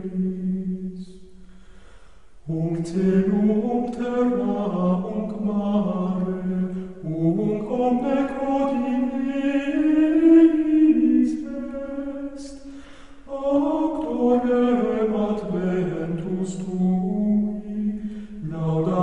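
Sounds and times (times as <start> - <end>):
men singing plainchant in unison: 2.5 - 12.5, 13.3 - 19.0.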